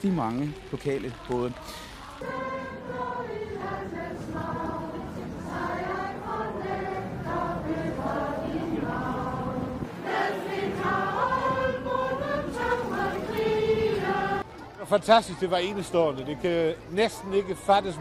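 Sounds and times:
crowd singing together: 1.0 - 14.5.

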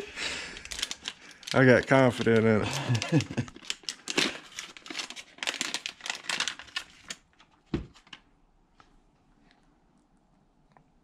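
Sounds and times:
packaging crinkling and crackling: 0.0 - 8.3.

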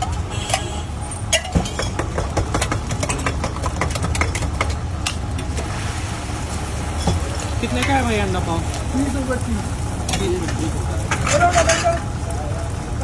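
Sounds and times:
steel utensils clinking: 0.0 - 2.0, 10.1 - 12.1.

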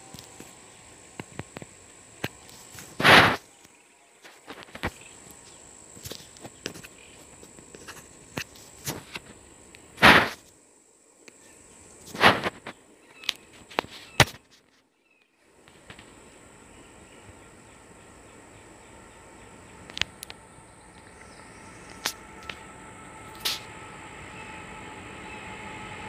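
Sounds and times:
loud bursts of noise: 0.0 - 3.5, 10.0 - 10.4
insects chirring: 0.0 - 26.0
small clicks: 19.9 - 21.2.

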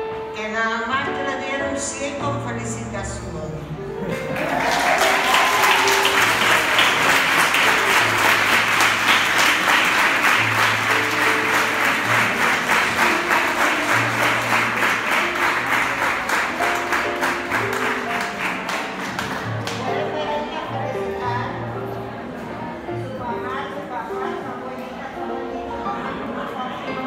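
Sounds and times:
background music: 0.0 - 27.0
audience applauding: 4.1 - 20.0.

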